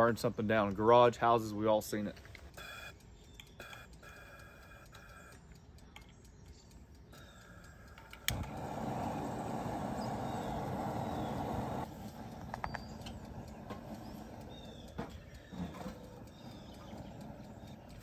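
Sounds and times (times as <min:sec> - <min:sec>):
gas burner flame running: 0:03.9 - 0:18.0
lighter click: 0:07.3 - 0:14.9.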